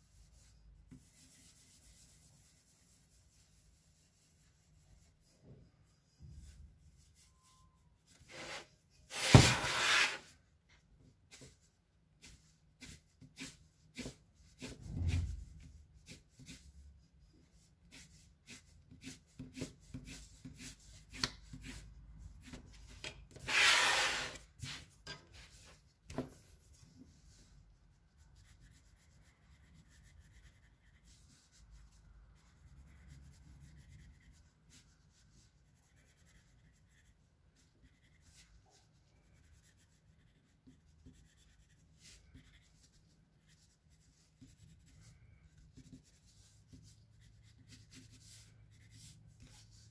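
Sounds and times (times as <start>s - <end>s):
pencil scratching on paper: 0.0s - 10.4s, 11.3s - 27.5s, 28.1s - 49.9s
loud scraping noise: 8.3s - 10.3s, 23.4s - 24.4s.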